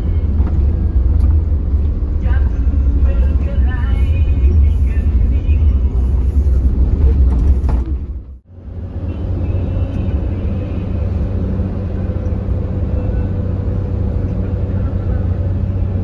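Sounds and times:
bus engine and road rumble: 0.0 - 16.0
low hum: 0.0 - 16.0.

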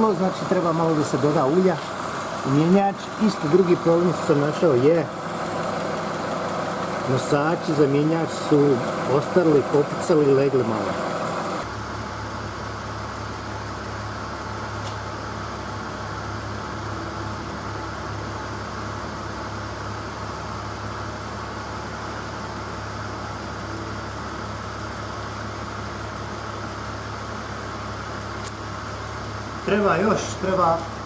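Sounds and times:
machine humming: 0.0 - 20.1.

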